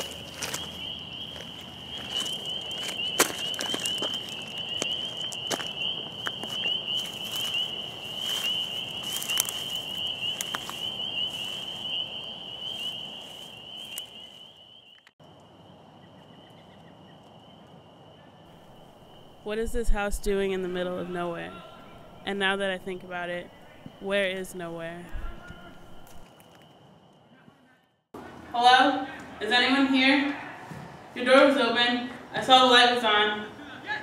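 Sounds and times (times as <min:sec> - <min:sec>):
footsteps crunching through dry leaves: 0:00.0 - 0:14.9
insects trilling: 0:00.0 - 0:27.4.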